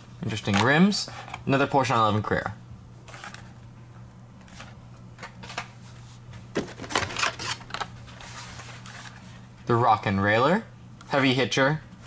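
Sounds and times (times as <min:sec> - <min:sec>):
plastic packs clicking and rustling: 0:06.6 - 0:07.9.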